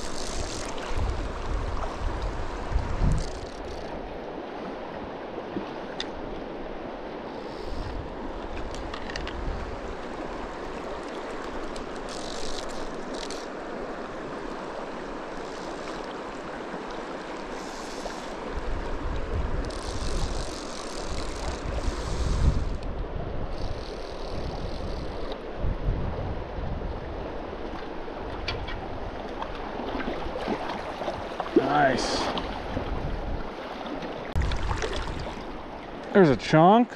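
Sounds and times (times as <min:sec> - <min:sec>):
wind buffeting microphone: 0:00.0 - 0:03.8, 0:18.4 - 0:27.6, 0:32.4 - 0:33.6.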